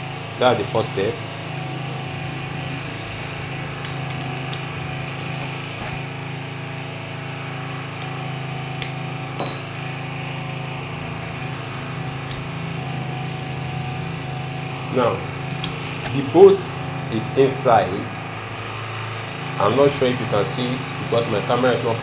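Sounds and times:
machine humming: 0:00.0 - 0:22.0
tools and small parts clicking: 0:09.4 - 0:09.7.

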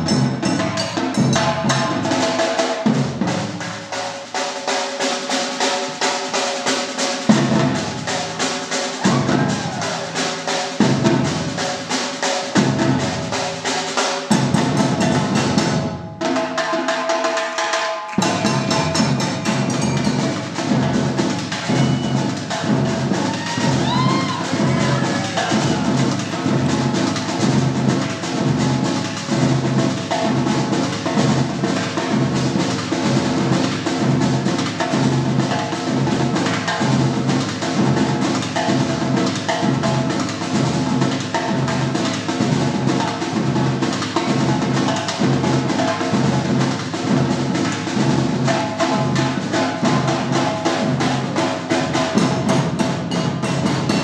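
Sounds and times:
samba percussion band playing: 0:00.0 - 0:54.0
surdo bass drums: 0:07.2 - 0:08.2, 0:10.8 - 0:11.9, 0:18.2 - 0:54.0.

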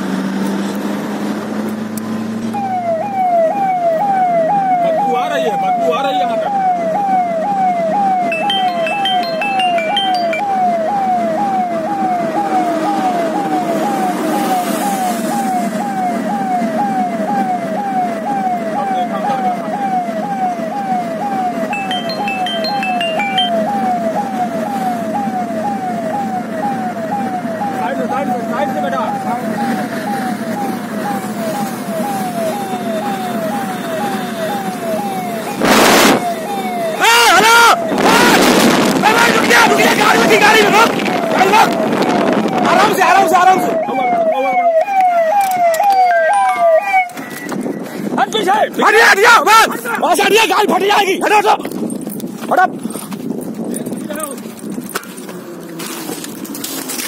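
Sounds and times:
vehicle rumbling on road: 0:00.0 - 0:57.0
electronic police siren wailing: 0:02.4 - 0:47.9
rushing wind noise: 0:37.9 - 0:44.3, 0:47.1 - 0:48.9, 0:51.0 - 0:55.0.

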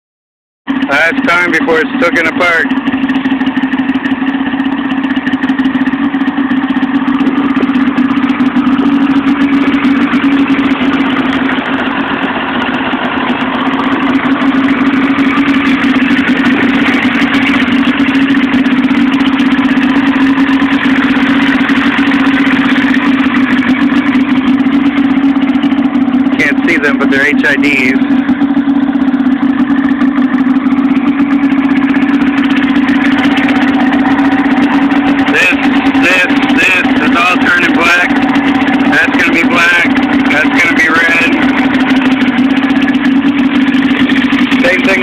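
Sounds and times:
snowmobile engine idling: 0:00.7 - 0:45.0.

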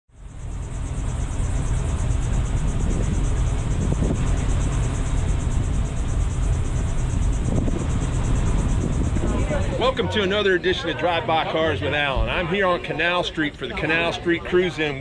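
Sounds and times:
high pulsing buzz: 0:00.1 - 0:15.0
street traffic rumble: 0:00.1 - 0:15.0.

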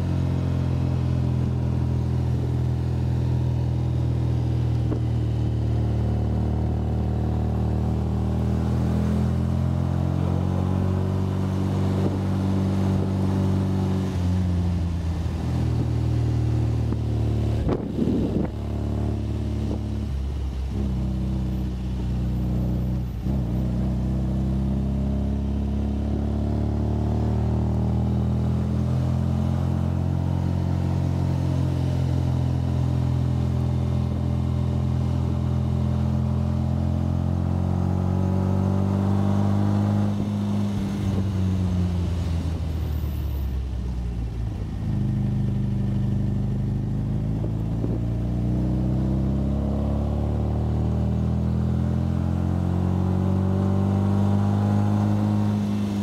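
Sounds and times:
sports car engine running: 0:00.0 - 0:56.0.

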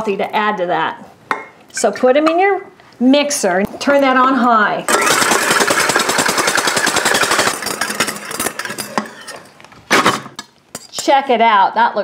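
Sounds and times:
stand mixer whisking: 0:04.9 - 0:08.9.

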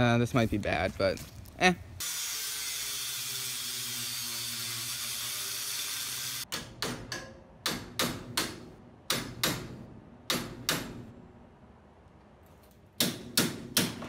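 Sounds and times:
angle grinder cutting steel: 0:02.0 - 0:06.5.

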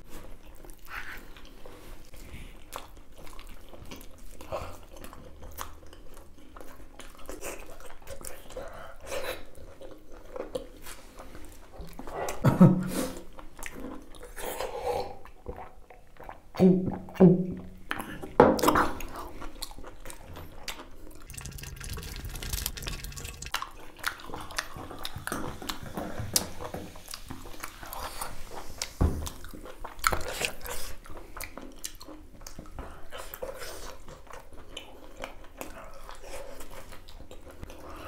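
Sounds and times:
wet chewing and slurping: 0:00.1 - 0:17.2, 0:17.8 - 0:38.0.

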